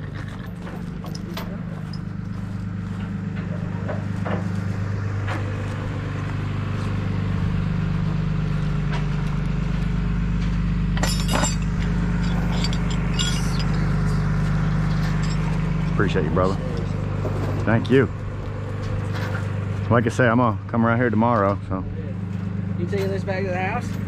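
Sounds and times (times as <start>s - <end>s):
pickup truck engine idling: 0.0s - 24.0s
metallic clinks: 11.0s - 14.2s, 14.9s - 15.6s.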